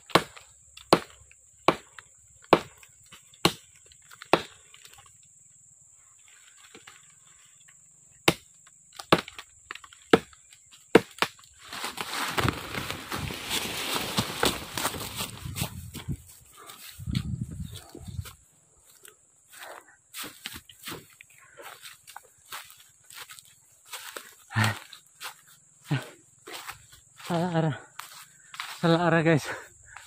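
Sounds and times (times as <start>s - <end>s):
machete chopping into tree trunk: 0.1s - 2.8s, 3.4s - 4.6s, 8.2s - 11.5s
branches and leaves crackling: 8.9s - 29.0s.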